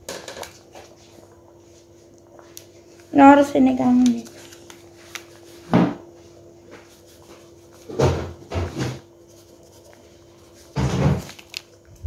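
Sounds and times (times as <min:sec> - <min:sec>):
faint steady hum: 0:00.0 - 0:12.0
plastic sachet crinkling: 0:03.7 - 0:05.5, 0:11.2 - 0:12.0.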